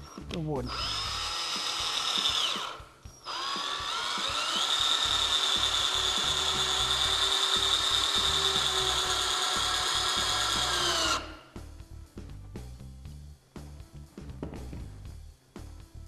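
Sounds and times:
power drill driving screw: 0.7s - 11.4s.

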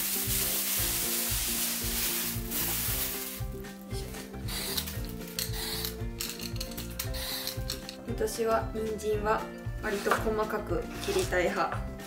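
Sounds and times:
plastic bag crinkling: 0.0s - 3.6s
soft background music: 0.0s - 12.0s.

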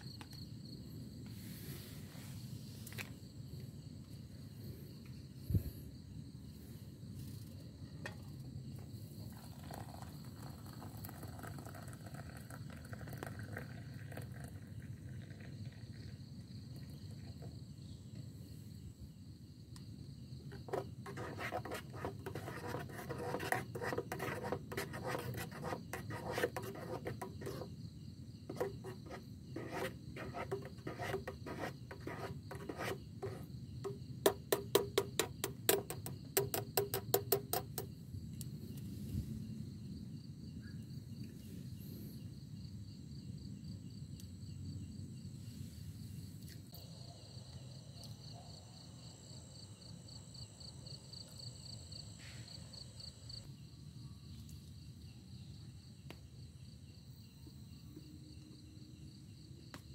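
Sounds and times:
scraping and rubbing: 20.5s - 27.8s, 28.5s - 37.9s.

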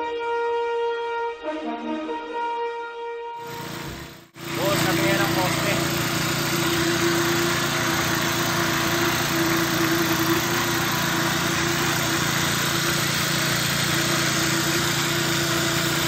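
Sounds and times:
concrete vibrator humming: 3.4s - 16.0s.

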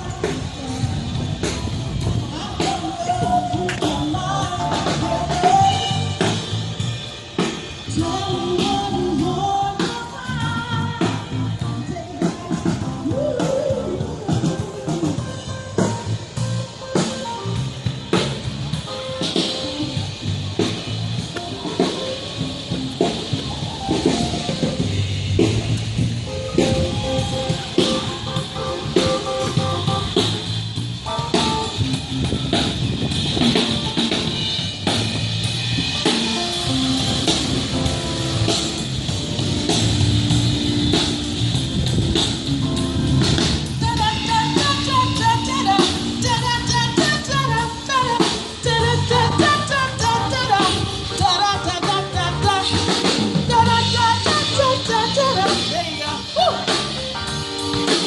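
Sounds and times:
person singing: 0.0s - 6.6s, 7.9s - 17.5s, 43.8s - 57.3s
drum kit beat: 0.0s - 58.0s.

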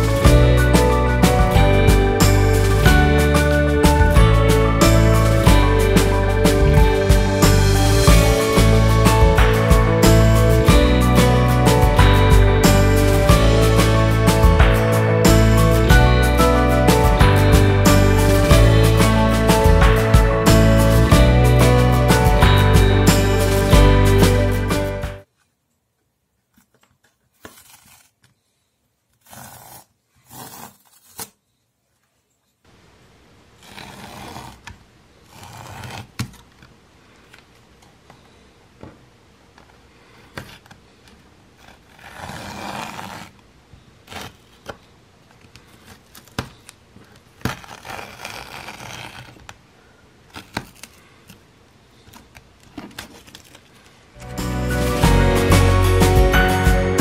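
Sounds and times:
fingers scraping canvas: 27.4s - 28.2s, 29.1s - 31.3s, 33.6s - 36.4s, 41.5s - 43.4s, 44.0s - 44.7s, 47.2s - 49.5s.

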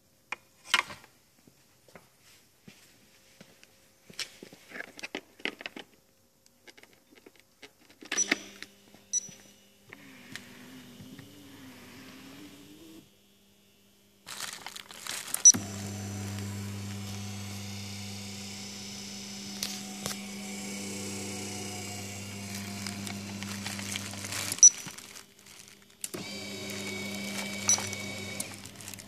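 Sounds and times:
electric motor hum: 9.9s - 13.7s, 14.3s - 29.0s
plastic crinkling: 14.2s - 17.4s, 21.6s - 29.0s.

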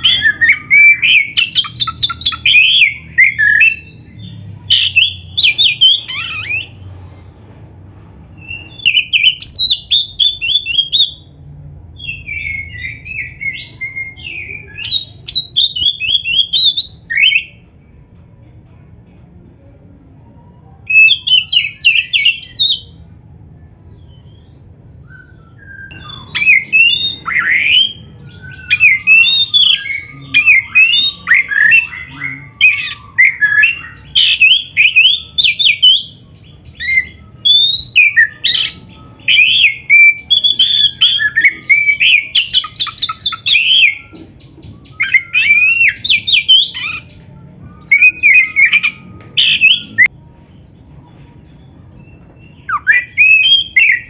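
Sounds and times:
bird singing loudly: 0.0s - 6.8s, 8.4s - 11.3s, 12.0s - 17.6s, 25.0s - 47.2s, 47.8s - 50.1s, 52.1s - 54.0s.

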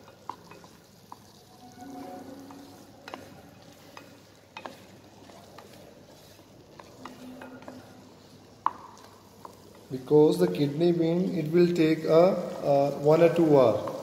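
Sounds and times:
faint sizzle: 0.0s - 14.0s
spatula scraping saucepan: 0.1s - 9.8s.

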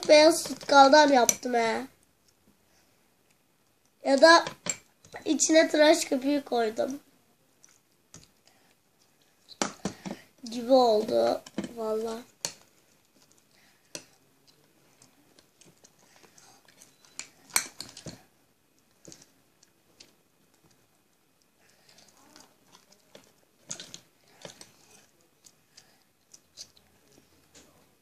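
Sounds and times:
slime being stirred: 7.6s - 27.8s.

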